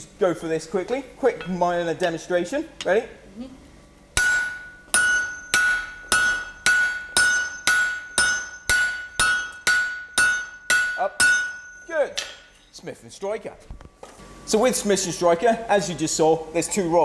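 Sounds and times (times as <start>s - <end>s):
hammers striking steel on anvil: 4.2s - 12.6s
anvil ringing: 4.2s - 12.7s.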